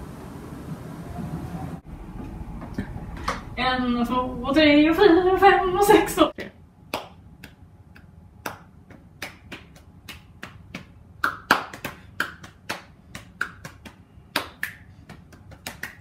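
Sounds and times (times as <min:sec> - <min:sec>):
hands clapping: 0:06.9 - 0:16.0.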